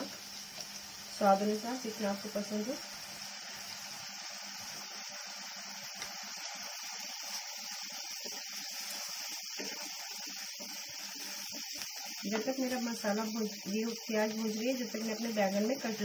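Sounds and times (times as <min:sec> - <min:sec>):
paste sizzling in hot oil: 0:00.0 - 0:16.0.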